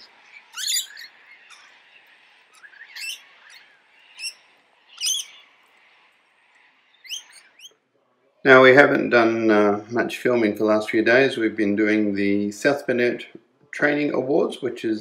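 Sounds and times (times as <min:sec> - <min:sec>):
parrots screeching: 0:00.0 - 0:07.8.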